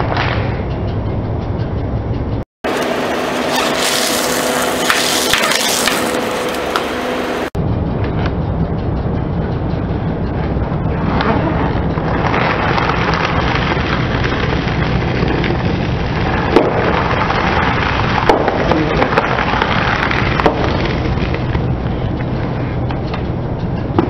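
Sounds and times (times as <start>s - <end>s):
car engine humming: 0.6s - 24.0s
tyre crunching cereal boxes: 3.5s - 6.4s.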